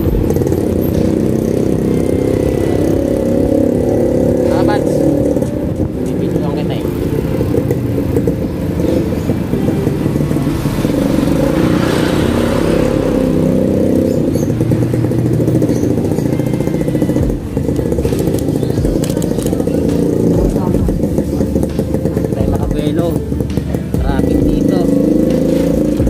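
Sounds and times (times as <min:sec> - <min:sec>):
motorcycle engine droning: 0:00.0 - 0:26.0.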